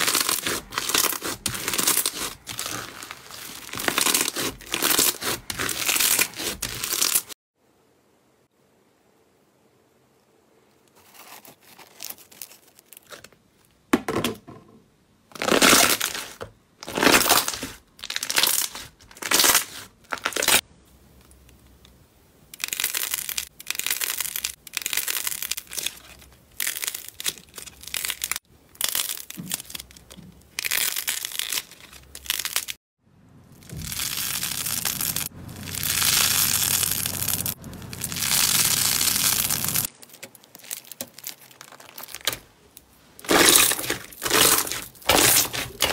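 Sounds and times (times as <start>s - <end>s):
slime squishing and crackling: 0.0s - 7.4s, 15.4s - 20.6s, 22.6s - 32.8s, 33.5s - 42.5s, 43.2s - 45.9s.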